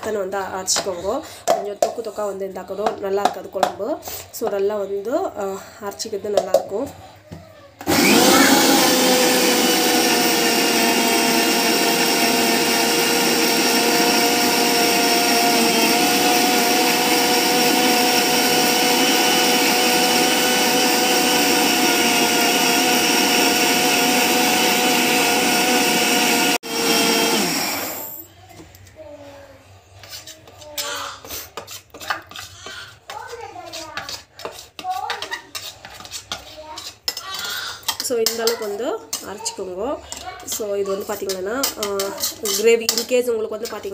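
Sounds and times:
mixer grinder motor whining: 7.8s - 28.3s.

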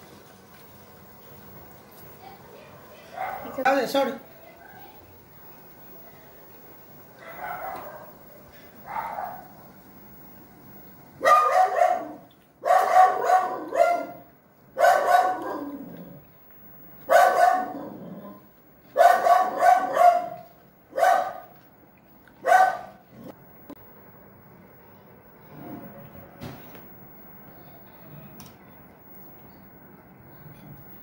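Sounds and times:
dog barking loudly: 7.2s - 8.1s, 8.8s - 9.5s, 11.2s - 15.8s, 17.1s - 17.9s, 18.9s - 21.5s, 22.4s - 23.0s.

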